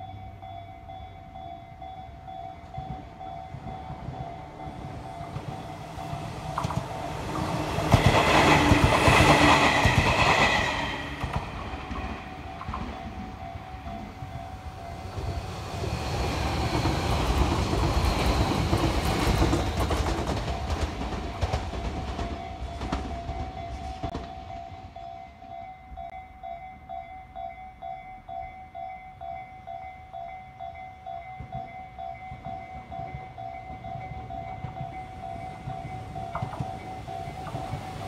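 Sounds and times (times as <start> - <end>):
electric trains passing: 0.0 - 38.0
wheels clicking over rail joints: 2.6 - 24.4, 31.4 - 38.0.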